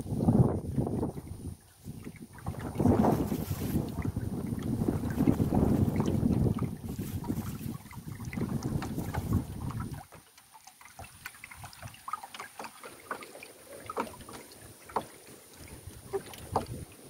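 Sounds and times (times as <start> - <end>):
wind buffeting microphone: 0.0 - 10.2, 13.9 - 17.0
water drips and splashes: 0.0 - 17.0
light knocks on wooden canoe: 8.3 - 10.3, 13.9 - 17.0.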